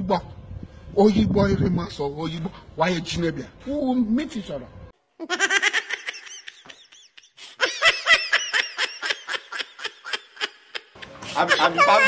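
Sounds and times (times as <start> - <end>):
high-pitched laughter: 5.2 - 12.0.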